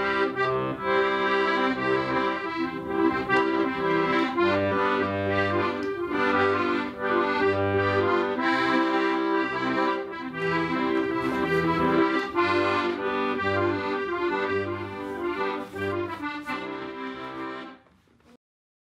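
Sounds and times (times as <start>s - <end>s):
accordion music: 0.0s - 18.1s.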